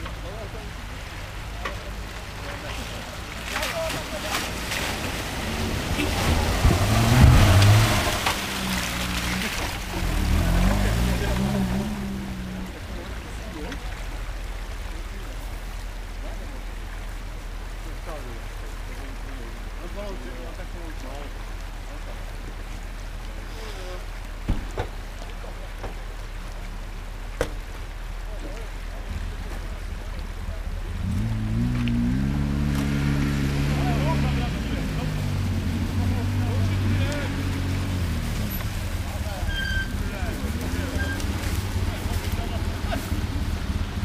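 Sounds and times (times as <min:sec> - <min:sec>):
off-road vehicle engine revving: 0:00.0 - 0:14.7, 0:29.0 - 0:44.0
water splashing: 0:00.0 - 0:44.0.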